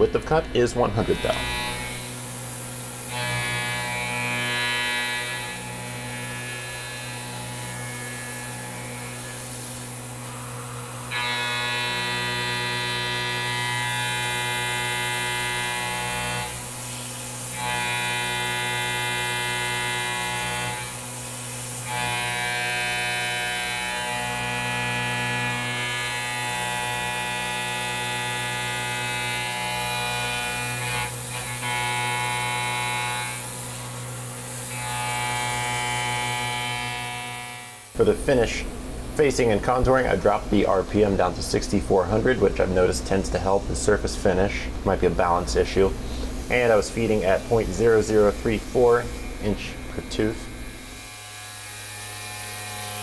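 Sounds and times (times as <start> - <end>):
milling machine whine: 0.0 - 39.1.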